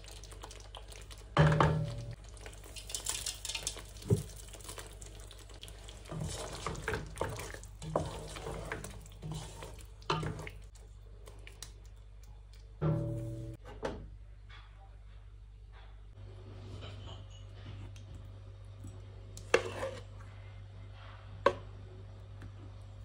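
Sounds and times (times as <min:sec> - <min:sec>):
spatula scraping in pan: 0:05.9 - 0:10.7, 0:19.5 - 0:20.1.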